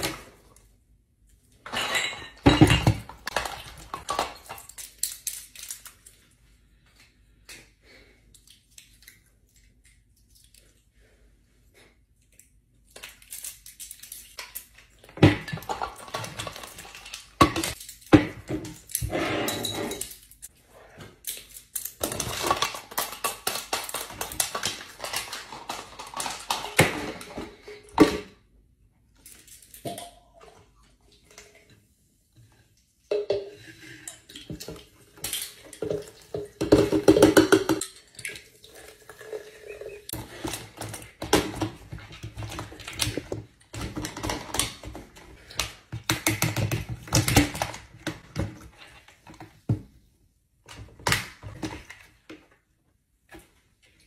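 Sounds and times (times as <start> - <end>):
plastic packaging rattling: 21.5 - 27.2.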